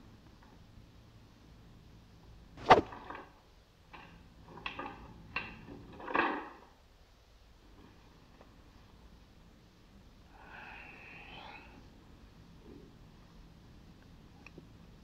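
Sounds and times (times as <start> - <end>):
nunchaku swishing through air: 2.6 - 3.0.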